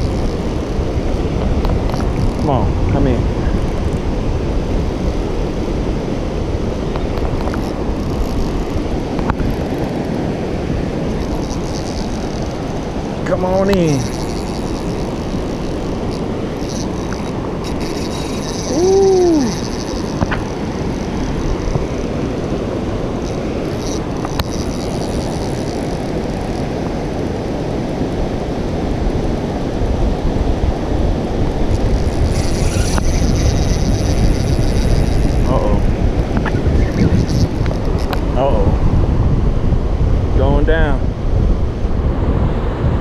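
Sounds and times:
fishing reel whirring: 0:00.0 - 0:29.3, 0:31.2 - 0:38.7
wind rumble on microphone: 0:00.0 - 0:43.0
person saying ooh: 0:18.7 - 0:19.6.

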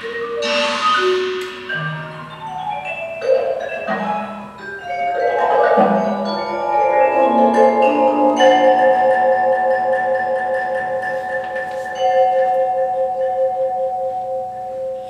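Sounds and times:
mallet percussion notes ringing: 0:00.0 - 0:15.0
wavering held chord: 0:04.0 - 0:15.0.

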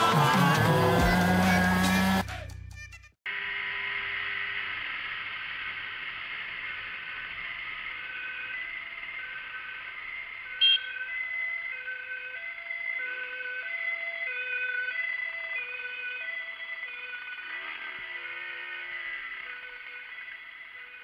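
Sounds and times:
brief loud tone: 0:03.3 - 0:04.8, 0:10.6 - 0:11.1
ambulance two-tone siren: 0:07.3 - 0:21.0.

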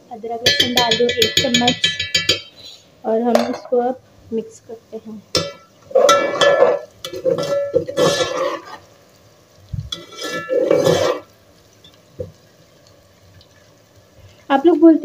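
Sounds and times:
frying onions: 0:00.0 - 0:15.0
spatula scraping metal pot: 0:05.4 - 0:08.9, 0:09.9 - 0:11.3.

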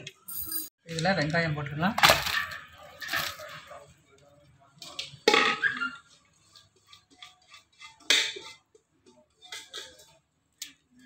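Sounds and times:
scrapes and knocks on steel vessel: 0:06.5 - 0:10.2.

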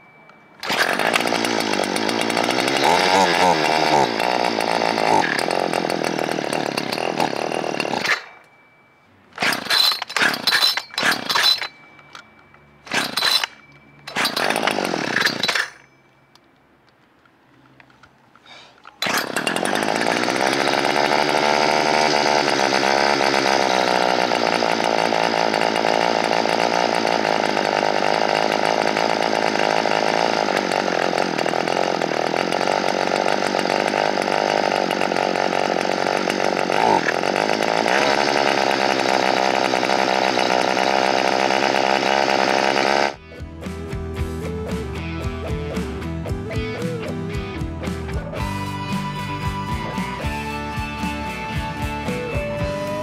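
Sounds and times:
chainsaw engine running: 0:00.6 - 0:08.7, 0:09.4 - 0:12.2, 0:12.8 - 0:15.9, 0:18.9 - 0:53.0
music: 0:43.2 - 0:53.0.

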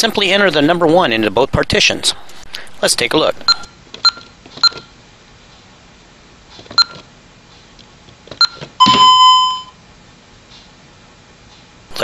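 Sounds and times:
alarm keypad key beeps: 0:08.4 - 0:09.8
long keypad beep: 0:08.4 - 0:09.8.

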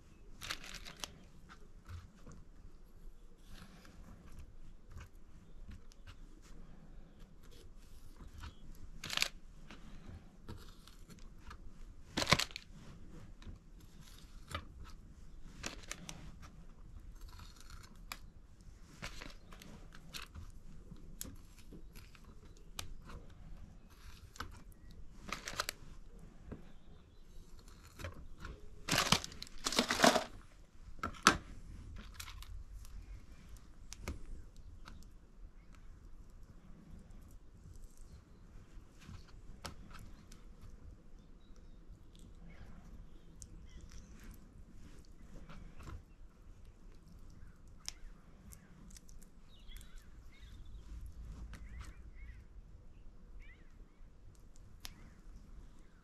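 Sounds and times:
food preparation rustles and clicks: 0:00.1 - 0:02.8, 0:07.2 - 0:35.7.

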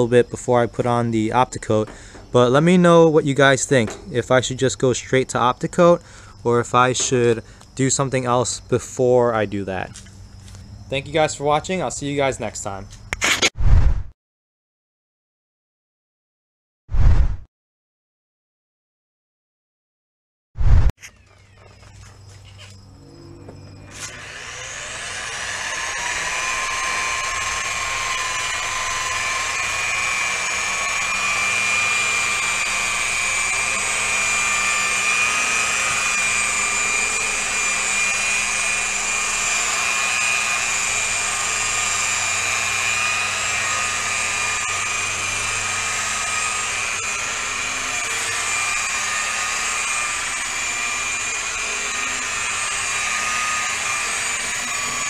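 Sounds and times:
rotary polisher whining: 0:07.0 - 0:07.7, 0:21.6 - 0:55.0.

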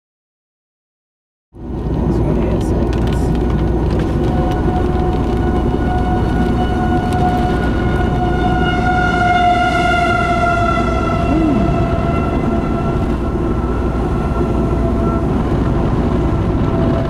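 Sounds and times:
low rumble of wind: 0:01.6 - 0:17.0
warning siren steady tone: 0:04.2 - 0:17.0.

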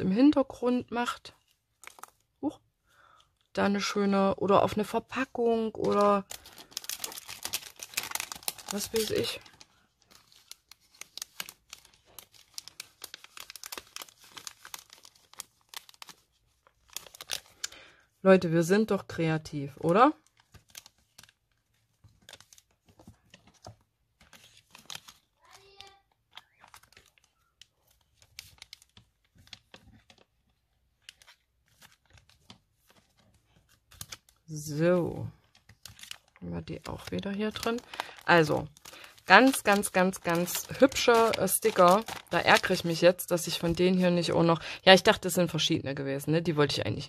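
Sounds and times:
plastic packet crinkling: 0:01.8 - 0:02.3, 0:05.6 - 0:17.8, 0:19.8 - 0:34.5, 0:35.2 - 0:44.0.

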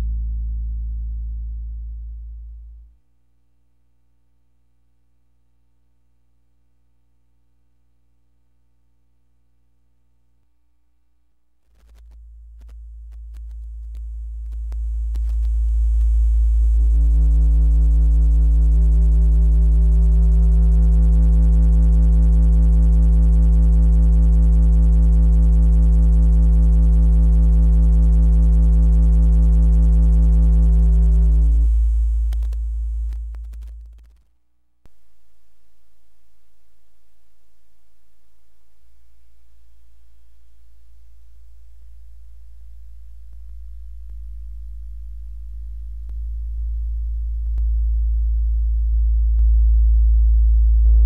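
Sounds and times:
low sine test tone hum: 0:00.0 - 0:51.0
faint clicks: 0:11.7 - 0:16.1, 0:32.2 - 0:34.3
buzzy clipping overtones: 0:30.7 - 0:34.3.

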